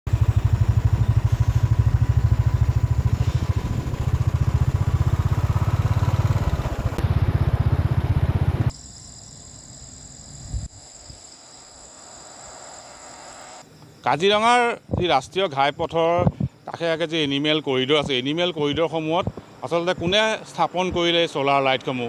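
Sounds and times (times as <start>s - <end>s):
motorcycle engine running: 0.1s - 8.7s
insects calling at night: 0.1s - 22.0s.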